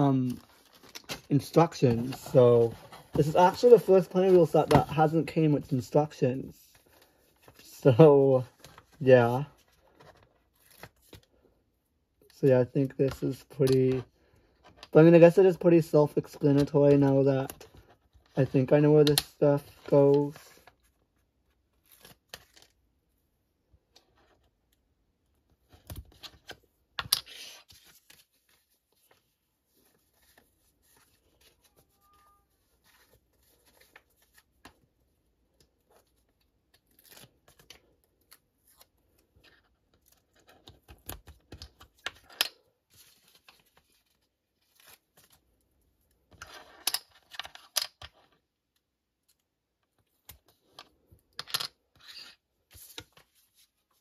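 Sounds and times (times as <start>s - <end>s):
paper rustling: 25.7s - 34.9s.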